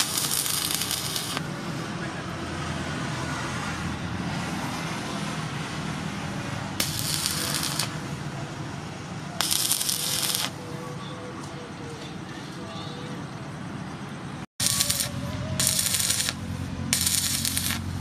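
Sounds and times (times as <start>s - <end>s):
arc welding bursts: 0.0s - 1.5s, 6.8s - 8.0s, 9.4s - 10.6s, 14.6s - 18.0s.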